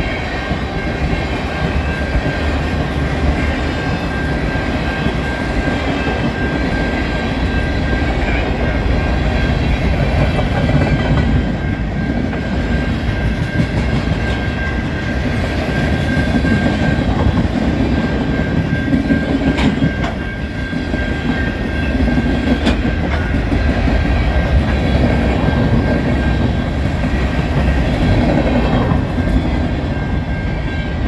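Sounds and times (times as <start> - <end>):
steady high tone: 0.0 - 31.0
train wheels rumbling: 0.0 - 31.0
wheels clacking over rail joints: 9.9 - 30.6.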